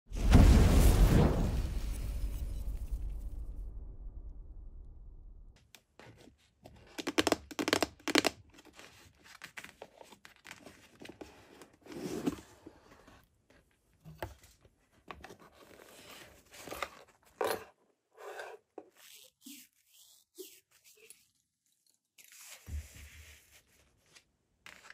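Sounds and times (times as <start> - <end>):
cardboard box rustling and scraping: 8.6 - 13.2.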